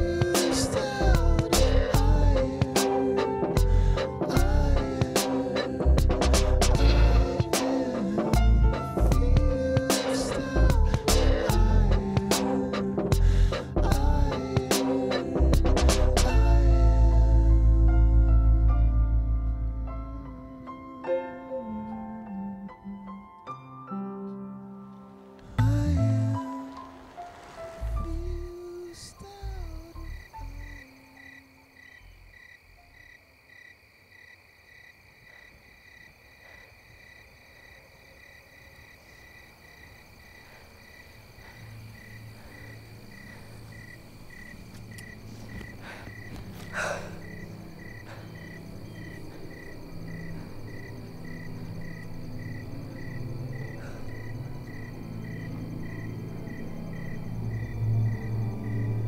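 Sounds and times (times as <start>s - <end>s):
crickets chirping: 0.0s - 6.0s, 6.8s - 15.6s, 16.3s - 23.3s, 24.9s - 59.0s
low drone: 25.1s - 30.8s, 41.4s - 59.0s.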